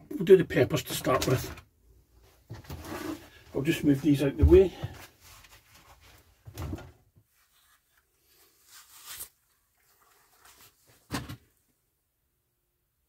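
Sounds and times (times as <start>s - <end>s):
plastic pots knocking and scraping: 2.4s - 5.2s.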